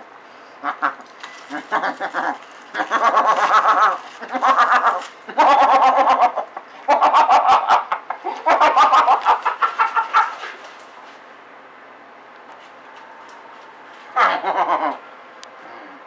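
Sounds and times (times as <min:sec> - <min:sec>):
man clucking like a chicken: 0:00.6 - 0:10.4, 0:14.2 - 0:15.0.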